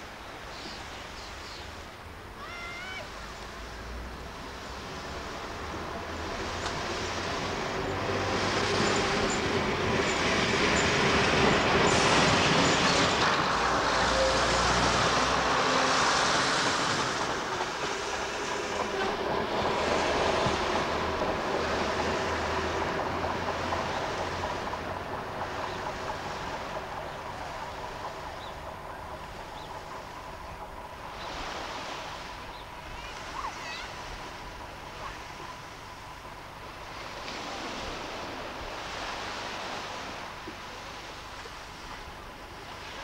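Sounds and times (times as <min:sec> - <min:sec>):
diesel train engines running: 0:03.1 - 0:43.0
train wheels rolling on rails: 0:03.5 - 0:43.0.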